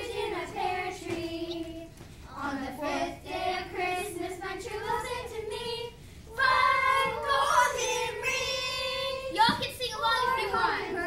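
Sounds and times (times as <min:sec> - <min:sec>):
children singing carol: 0:00.0 - 0:11.0.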